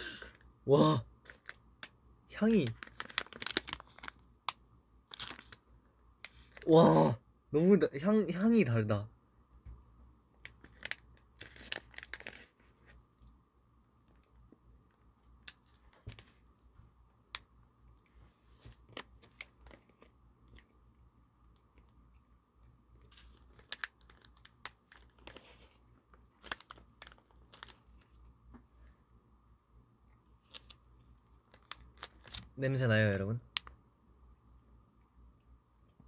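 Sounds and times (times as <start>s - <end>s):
plastic pouch crinkling: 1.2s - 1.6s, 2.5s - 4.2s, 5.1s - 5.6s, 10.4s - 13.0s, 18.7s - 20.7s, 23.0s - 28.2s, 30.4s - 30.8s, 31.5s - 32.6s.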